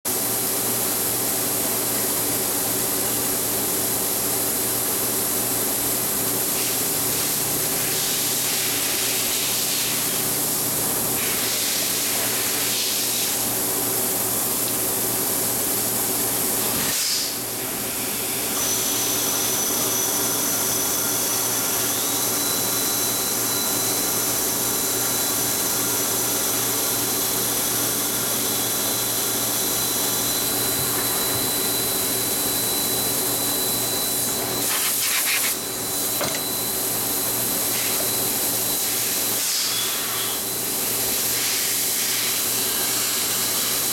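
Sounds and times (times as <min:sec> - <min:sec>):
thin high whine: 0:18.6 - 0:43.9.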